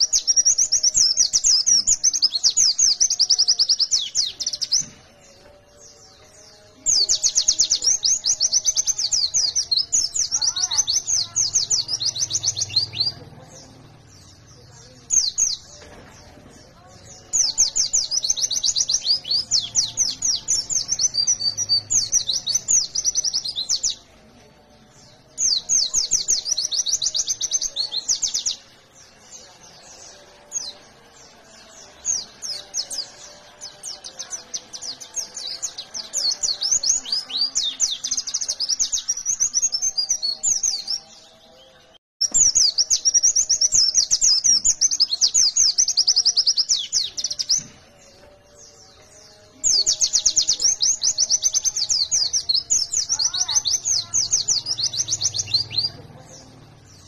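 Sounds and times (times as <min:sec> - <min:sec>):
bird singing rapid trills: 0:00.0 - 0:24.2, 0:24.8 - 0:57.0.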